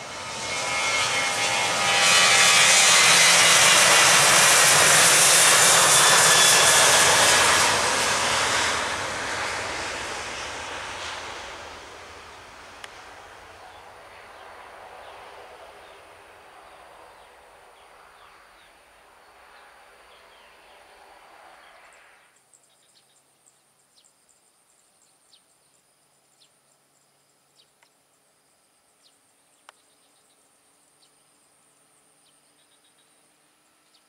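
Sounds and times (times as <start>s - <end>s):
jet engines roaring: 0.0s - 22.2s
faint insects chirring: 9.2s - 34.0s.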